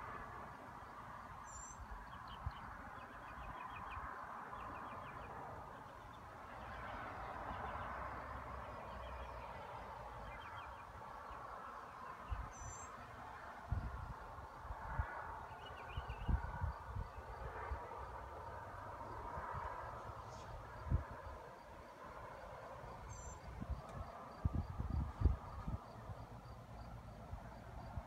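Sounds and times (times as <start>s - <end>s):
steady outdoor hum: 0.0s - 28.0s
small birds chirping: 12.2s - 13.0s, 23.1s - 23.5s.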